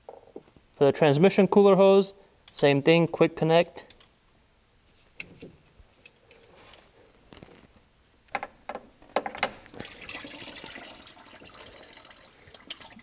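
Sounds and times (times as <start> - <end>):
coolant pouring into pan: 9.7 - 13.0.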